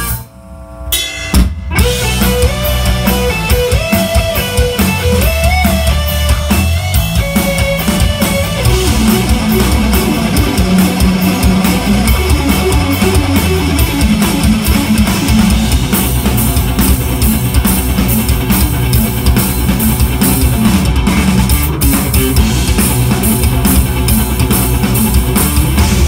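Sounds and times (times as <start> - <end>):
cymbals: 0.0 - 5.4
bass guitar: 0.0 - 26.0
drum kit: 0.0 - 26.0
electric guitar fast runs: 1.7 - 26.0.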